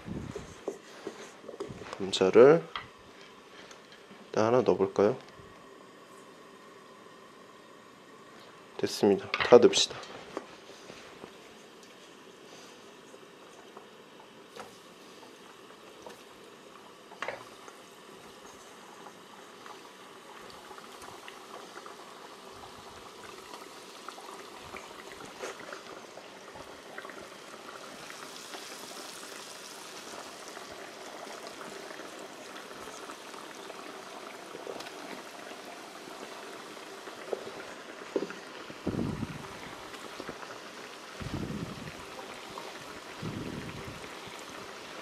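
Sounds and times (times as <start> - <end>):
food sizzling in hot oil: 14.3 - 45.0.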